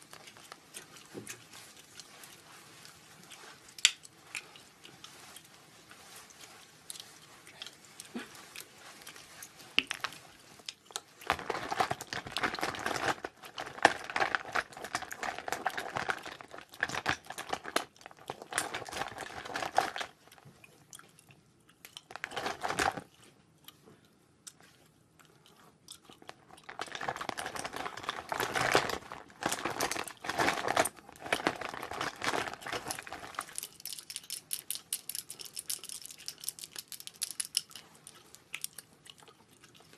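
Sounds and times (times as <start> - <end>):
plastic pouch crinkling: 11.3 - 20.1, 26.2 - 37.8.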